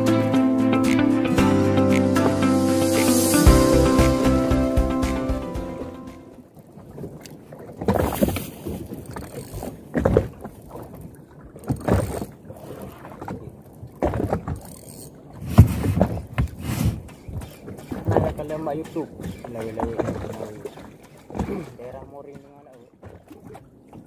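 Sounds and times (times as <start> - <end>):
water slapping against boat hull: 6.6 - 24.0.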